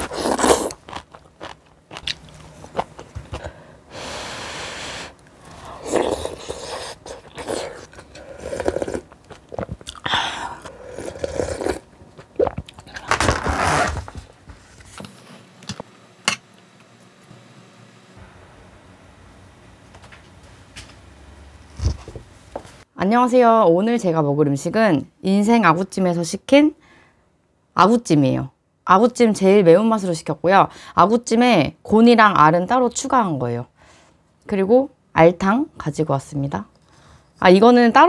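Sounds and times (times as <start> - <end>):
person chewing and crunching food: 0.0 - 3.6, 5.6 - 13.7.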